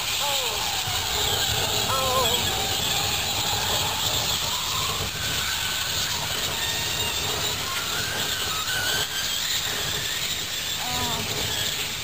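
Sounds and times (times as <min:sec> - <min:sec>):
faint high whistling: 0:00.0 - 0:12.0
fire roaring and hissing: 0:00.0 - 0:12.0.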